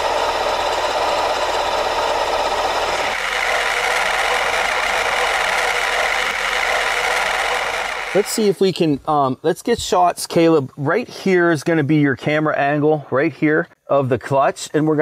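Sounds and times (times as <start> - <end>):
grinding rattle of bearing: 0.0 - 8.3
car engine running: 0.0 - 8.4.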